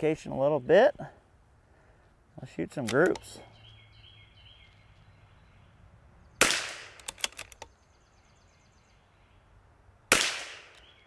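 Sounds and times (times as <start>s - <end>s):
rifle bolt clicking: 2.8s - 3.2s, 6.9s - 7.7s
rifle shot: 6.4s - 7.4s, 10.1s - 10.8s.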